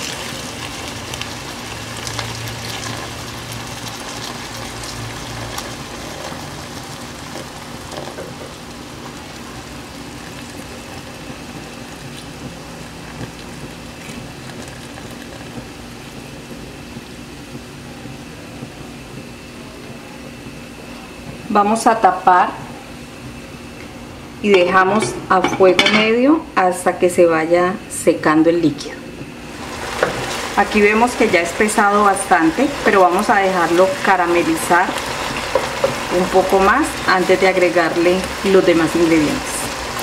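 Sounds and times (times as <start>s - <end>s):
liquid hissing in hot pan: 29.4s - 40.0s.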